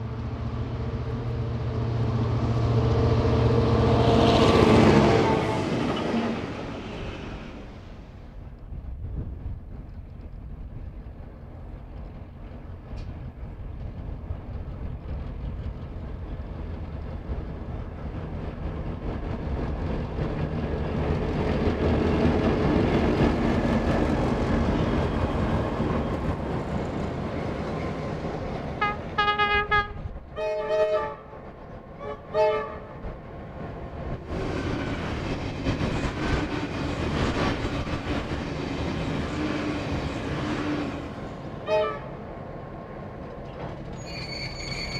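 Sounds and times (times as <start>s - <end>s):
diesel locomotives passing: 0.0s - 44.9s
locomotive horn toots: 28.8s - 31.4s, 32.0s - 33.0s, 41.6s - 42.3s.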